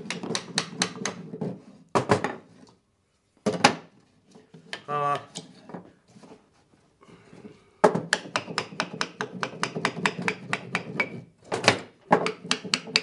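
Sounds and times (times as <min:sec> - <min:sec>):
hammer tapping on wood: 0:07.8 - 0:11.1, 0:12.1 - 0:13.0.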